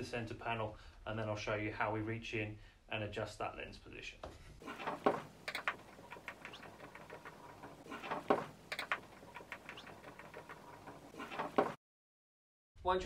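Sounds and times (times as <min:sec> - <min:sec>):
screwdriver squeaky clicks and scrapes: 0:05.4 - 0:11.6.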